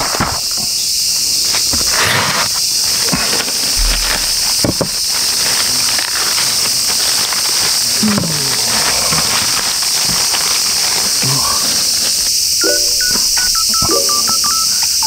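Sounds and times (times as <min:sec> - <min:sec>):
cicadas chorus: 0:00.0 - 0:15.0
plastic bag crinkling: 0:02.7 - 0:14.7.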